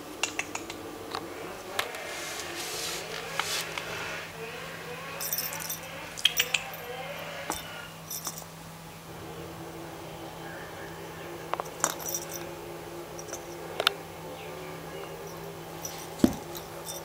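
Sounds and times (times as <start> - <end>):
cat collar tag jingling: 5.0 - 8.8, 11.5 - 14.0, 14.9 - 17.0.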